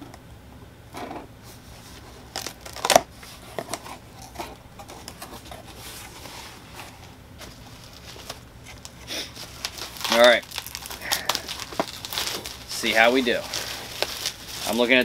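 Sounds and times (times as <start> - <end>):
cardboard rustling: 1.4 - 15.0.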